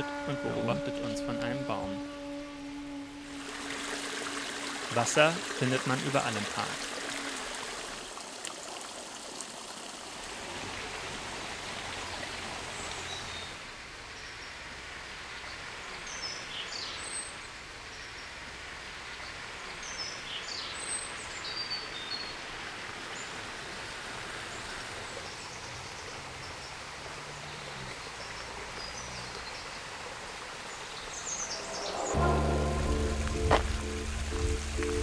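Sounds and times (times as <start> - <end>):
music: 0.0 - 5.4, 31.6 - 35.0
steady background hiss: 0.0 - 8.1.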